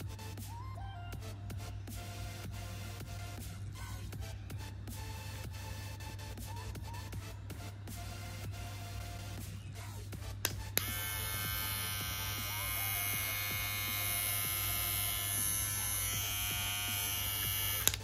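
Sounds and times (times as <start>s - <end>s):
hair trimmer buzzing: 10.5s - 18.0s.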